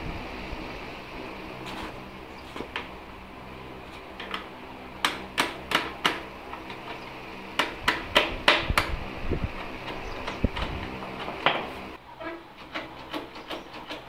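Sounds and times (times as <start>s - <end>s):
hammer tapping metal: 4.2s - 7.0s.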